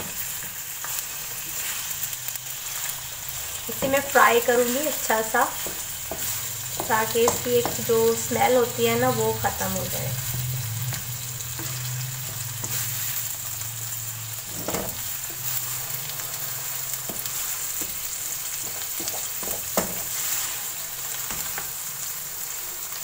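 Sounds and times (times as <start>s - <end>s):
meat sizzling in hot oil: 0.0s - 23.0s
wooden spoon knocking pan: 5.6s - 8.0s.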